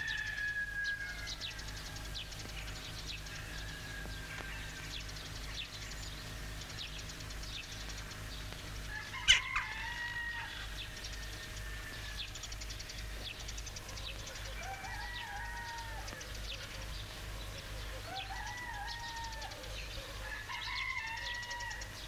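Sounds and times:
rooster crowing: 0.0 - 5.0, 8.8 - 12.4, 14.0 - 22.0
low steady hum: 0.0 - 22.0
small birds chirping: 0.0 - 22.0.

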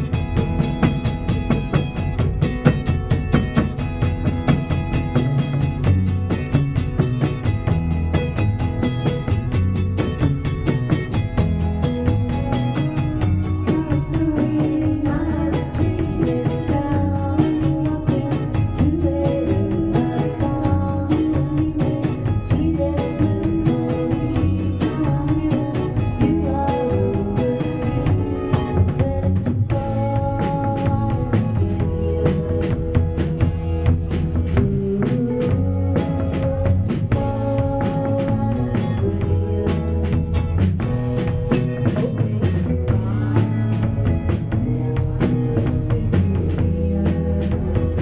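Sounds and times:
drum kit beat: 0.0 - 48.0
electric guitars: 0.0 - 48.0
woman singing into microphone: 12.3 - 40.9, 41.7 - 48.0.

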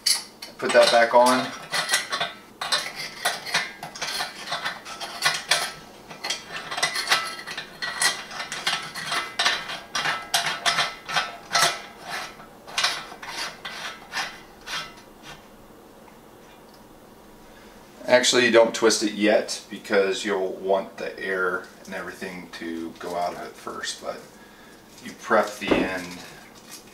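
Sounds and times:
metal grinder scraping and clicking: 0.0 - 15.0.

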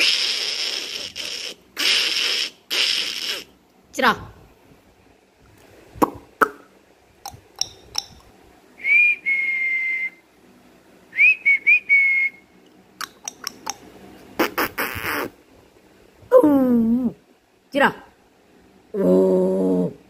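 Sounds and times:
kissing clicks: 0.0 - 3.6, 6.0 - 8.3, 12.6 - 15.4
person whistling: 8.8 - 10.2, 11.2 - 12.4.

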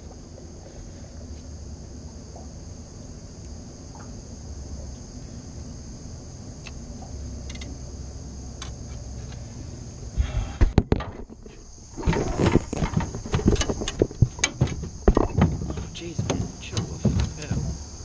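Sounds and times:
high-pitched insect buzz: 0.0 - 18.0
low wind rumble: 11.4 - 18.0.

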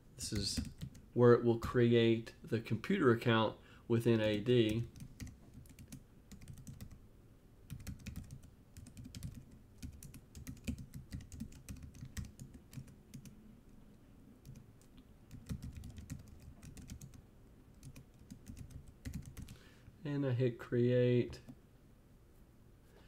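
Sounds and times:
computer keyboard typing: 0.4 - 1.0, 4.2 - 7.0, 7.7 - 13.3, 14.4 - 19.6.

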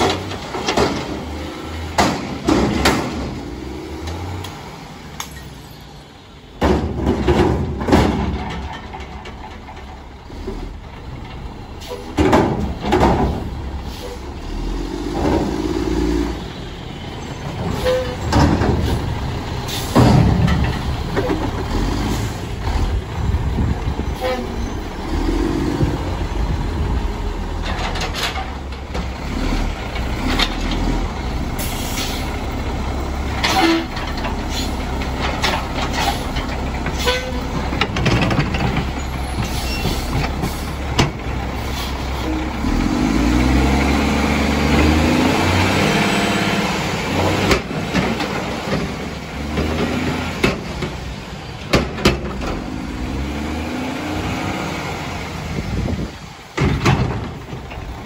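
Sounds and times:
metal bangs and clanks: 0.0 - 3.5, 6.6 - 10.6, 11.2 - 13.7, 17.5 - 22.9, 33.3 - 42.5, 47.2 - 52.7, 56.5 - 58.0
garbage truck engine rumble: 0.0 - 58.0.

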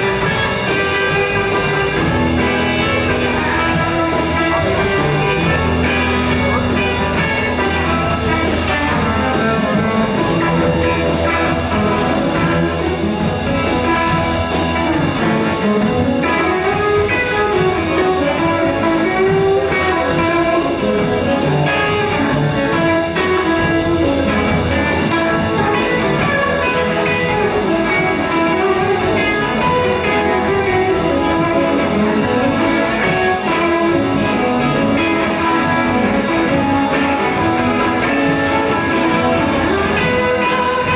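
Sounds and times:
blues band playing: 0.0 - 40.9.

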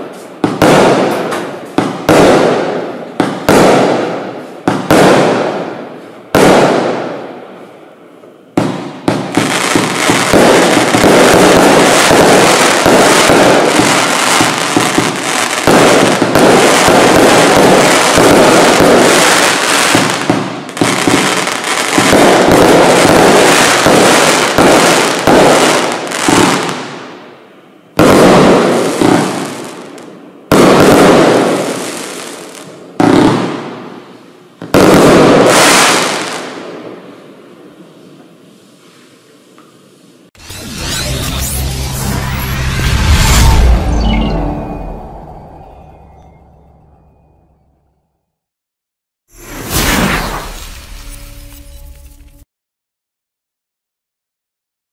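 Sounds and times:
single firework bursts: 0.0 - 7.4, 8.5 - 27.2, 27.9 - 34.0, 34.6 - 37.0, 49.3 - 52.0
fireworks banging and crackling: 0.0 - 7.8, 8.5 - 27.3, 27.9 - 41.7.

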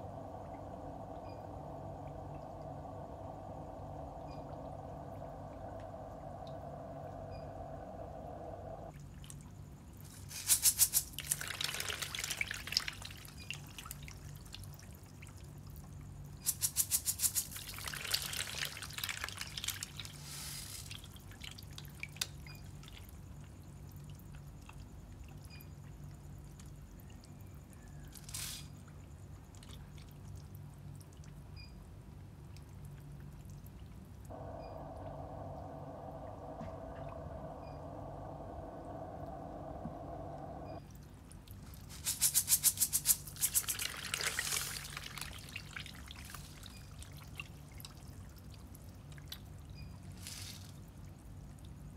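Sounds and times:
low steady hum: 0.0 - 51.9
fish splashing in water: 11.1 - 15.3, 41.8 - 49.6.

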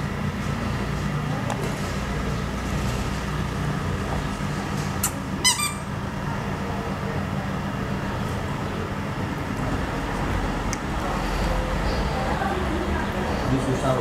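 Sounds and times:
short high-pitched squeak: 5.0 - 5.9.

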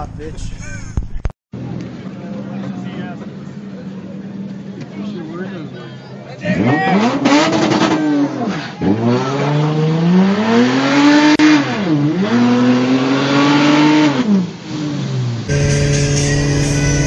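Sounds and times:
car engine revving hard: 6.5 - 17.0.

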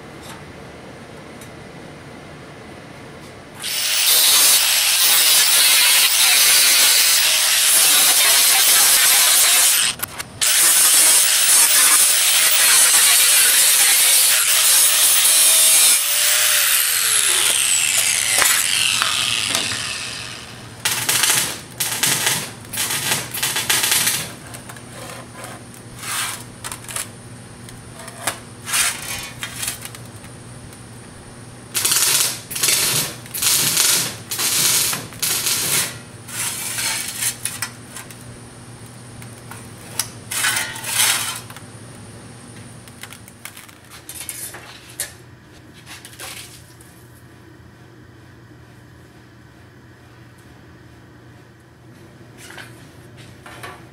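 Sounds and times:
angle grinder cutting sheet steel: 3.6 - 24.2
sheet metal scraping on workbench: 24.9 - 26.5, 28.0 - 29.7, 35.6 - 37.6, 40.3 - 41.5.

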